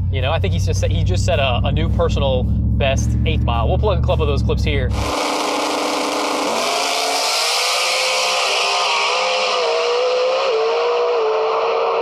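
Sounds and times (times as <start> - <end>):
drag race cars accelerating: 1.3 - 12.0.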